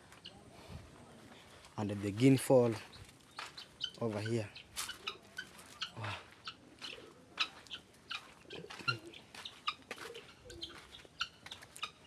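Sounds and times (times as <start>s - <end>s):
guinea fowl chirping calls: 2.9s - 12.0s.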